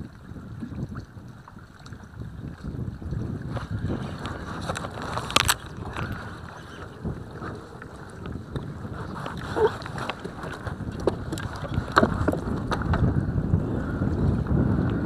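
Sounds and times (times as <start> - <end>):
wind on microphone: 0.0 - 15.0
gear knocking in plastic kayak: 2.5 - 13.6.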